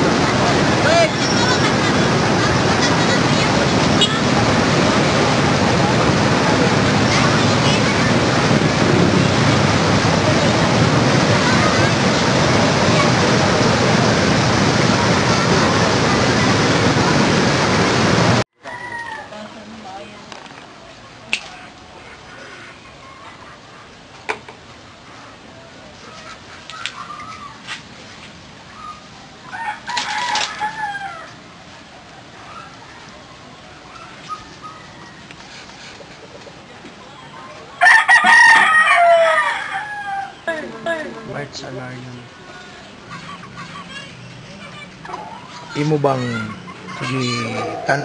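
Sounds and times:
river floodwater roaring: 0:00.0 - 0:18.5, 0:23.6 - 0:43.5
rooster crowing: 0:18.6 - 0:19.5, 0:29.4 - 0:31.4, 0:37.8 - 0:40.5.

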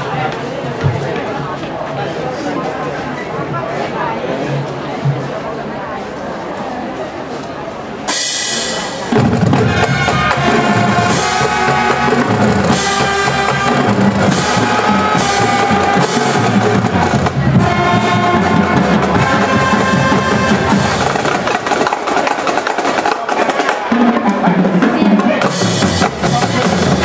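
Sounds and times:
marching band brass and drums: 0:08.0 - 0:27.0.

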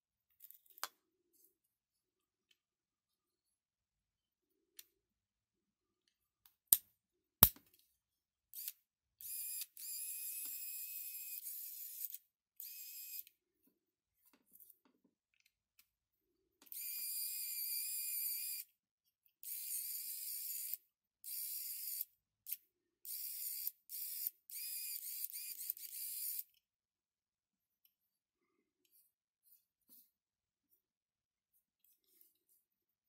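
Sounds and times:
electric screwdriver motor whine: 0:08.6 - 0:13.2, 0:16.7 - 0:18.6, 0:23.1 - 0:26.4.

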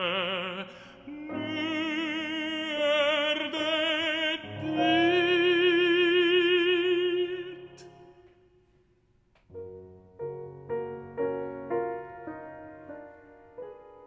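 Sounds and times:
piano chords: 0:00.0 - 0:08.6, 0:09.5 - 0:14.0.

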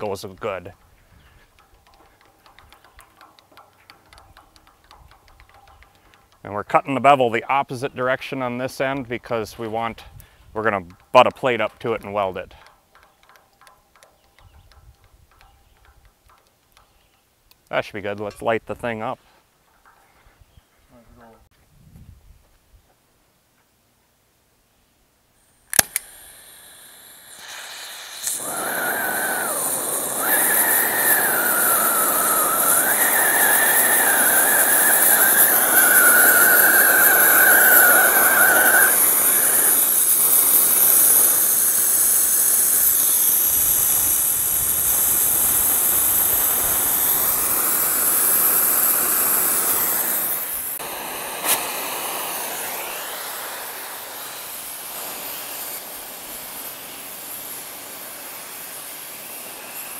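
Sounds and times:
sharp click: 0:00.7 - 0:06.5, 0:10.2 - 0:18.5, 0:25.7 - 0:26.3
cutting torch hissing: 0:25.7 - 0:59.9
wavering whistle: 0:26.9 - 0:50.8.

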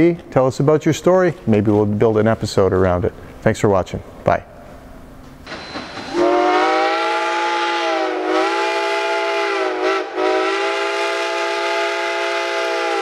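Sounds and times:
train whistle blast: 0:05.5 - 0:13.0.

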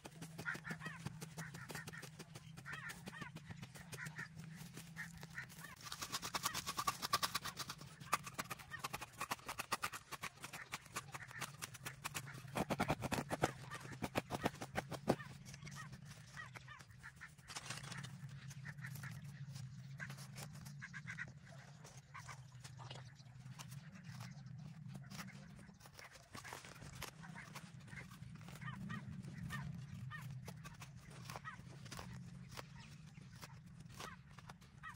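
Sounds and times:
hand digging in dry soil: 0:00.0 - 0:16.5.

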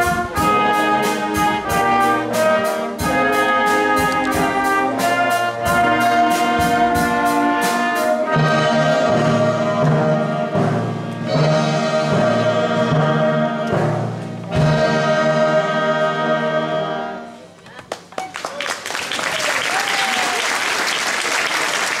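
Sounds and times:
orchestra playing: 0:00.0 - 0:17.6.

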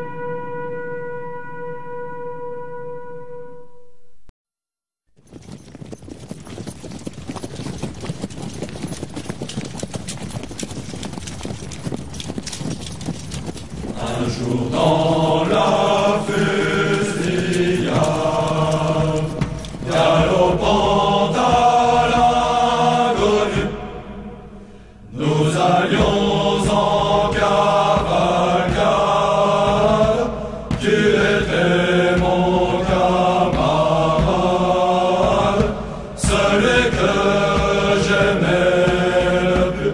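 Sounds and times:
dense patter of clicks and taps: 0:05.2 - 0:14.0, 0:16.8 - 0:20.1
voices chanting in held chords: 0:14.0 - 0:39.9.

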